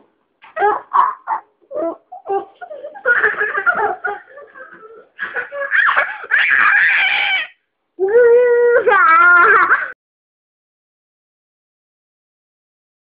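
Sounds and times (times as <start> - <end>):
small child laughing: 0.4 - 7.6, 8.8 - 10.0.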